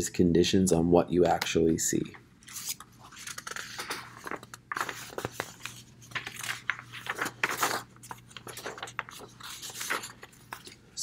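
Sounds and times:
paper sheets rustling and crinkling: 2.4s - 10.9s.

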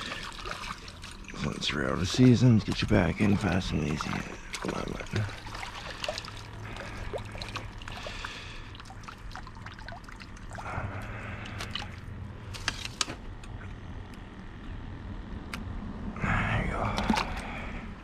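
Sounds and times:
water trickling and dripping: 0.0s - 10.8s
low steady hum: 0.0s - 18.0s.

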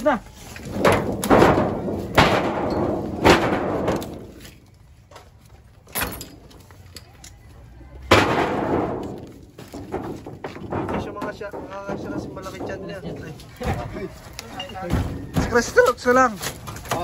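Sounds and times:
rattling clattering crash: 0.6s - 4.5s, 8.1s - 13.9s
heavy bangs on metal sheeting: 0.7s - 4.3s, 8.1s - 13.2s.

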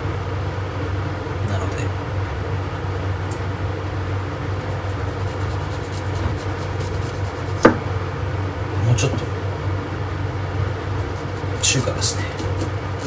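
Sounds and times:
kitchen background hum: 0.0s - 13.0s
sharp knock of something hard: 7.6s - 7.8s.

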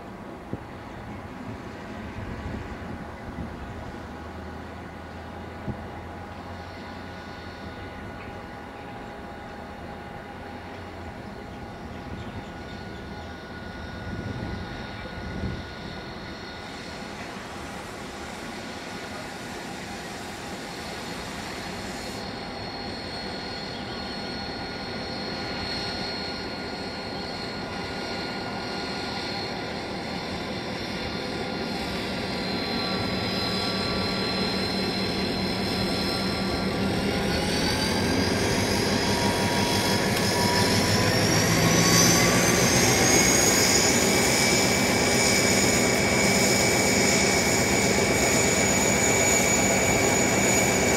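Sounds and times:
diesel locomotive engine passing: 0.0s - 50.9s
high whines: 12.6s - 50.9s.

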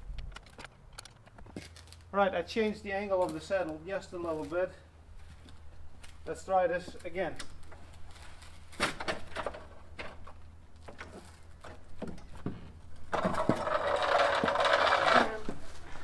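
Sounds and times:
bicycle rattling scrape on concrete: 13.2s - 16.0s.

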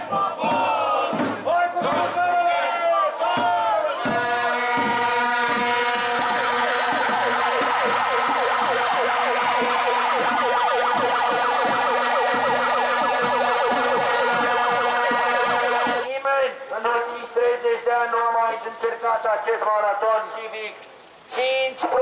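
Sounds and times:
drum beating: 0.0s - 16.1s
plastic horns blaring: 1.5s - 16.1s
siren warbling: 4.7s - 16.1s.

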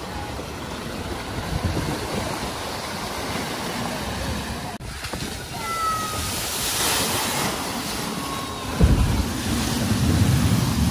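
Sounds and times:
car driving through water: 0.0s - 10.9s
water rushing and splashing: 0.0s - 10.9s.

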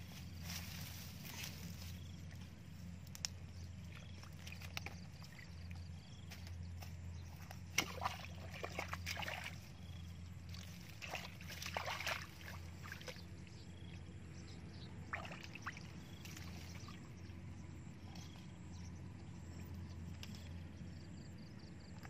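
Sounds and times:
steady low hum: 0.0s - 22.0s
muddy water splashing: 3.7s - 14.0s, 14.8s - 17.4s.

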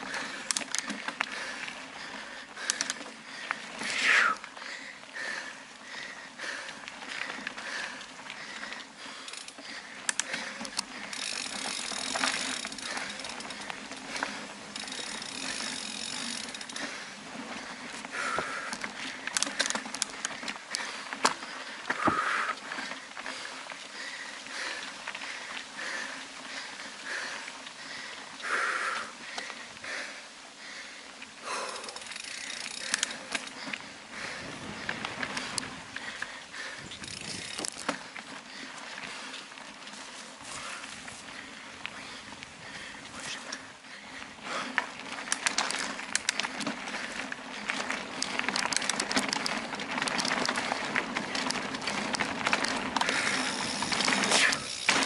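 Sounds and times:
bike chain rattling: 0.0s - 55.0s
footsteps on dirt trail: 0.0s - 55.0s
heavy breathing: 0.0s - 55.0s
bike clicks and knocks: 0.1s - 4.5s, 6.8s - 23.0s, 31.5s - 41.3s, 44.5s - 55.0s
tyres hissing over dirt: 46.8s - 55.0s.

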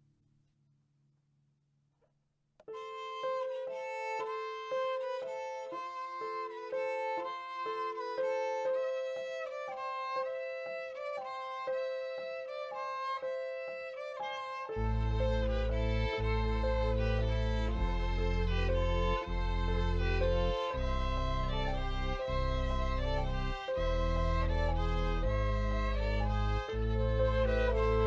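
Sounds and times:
slow violin melody: 2.7s - 28.0s
deep low sustained note: 14.6s - 28.0s.

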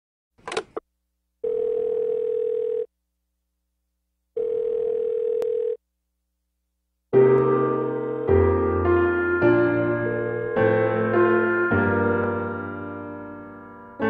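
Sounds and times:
telephone ringback tone: 1.4s - 2.9s, 4.4s - 5.8s.

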